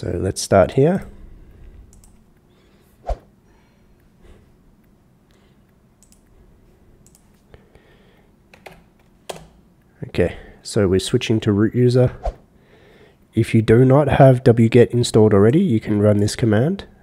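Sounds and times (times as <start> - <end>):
computer mouse clicks: 1.9 - 2.5, 5.7 - 6.4, 7.0 - 7.4.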